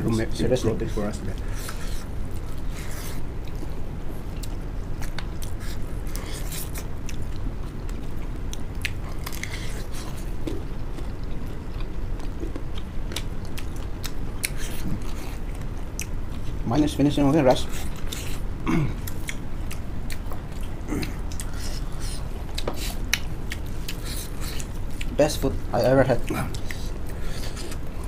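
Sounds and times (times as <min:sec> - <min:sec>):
low steady hum: 0:00.0 - 0:28.0
chewing and biting food: 0:00.8 - 0:16.6, 0:17.5 - 0:28.0.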